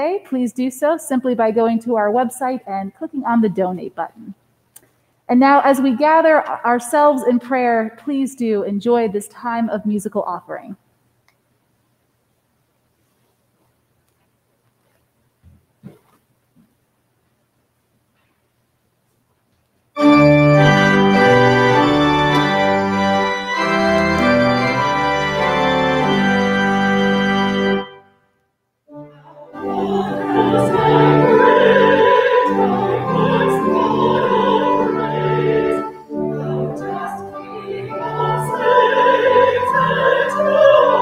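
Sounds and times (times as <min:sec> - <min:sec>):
woman singing with vibrato: 0:05.3 - 0:08.0, 0:29.1 - 0:41.0
church organ chords: 0:20.0 - 0:28.2, 0:28.9 - 0:41.0.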